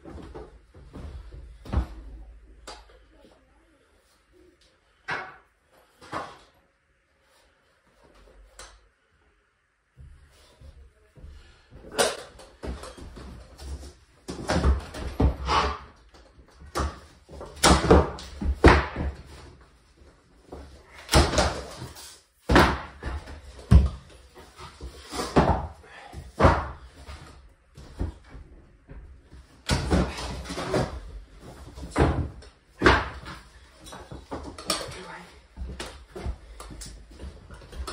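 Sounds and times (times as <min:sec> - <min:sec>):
flooring planks knocking and clattering: 0:11.8 - 0:19.6, 0:20.5 - 0:37.9.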